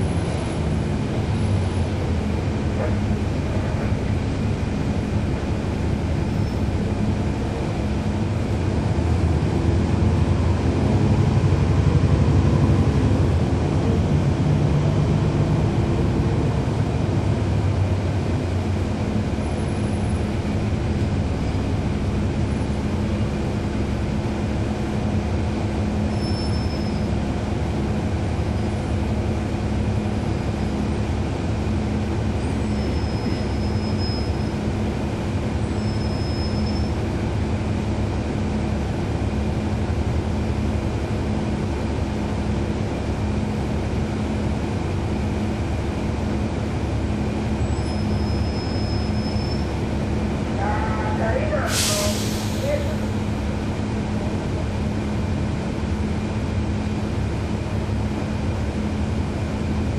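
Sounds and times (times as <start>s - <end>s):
bus diesel engine drone: 0.0s - 59.9s.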